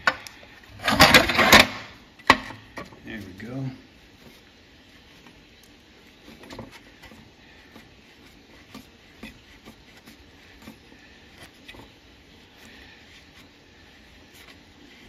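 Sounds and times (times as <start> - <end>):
metal clicks and scrapes: 0.0 - 2.9.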